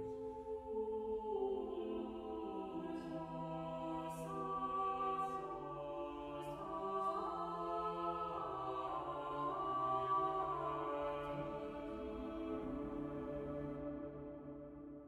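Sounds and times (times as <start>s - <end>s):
wordless choir singing chords: 0.0s - 15.0s.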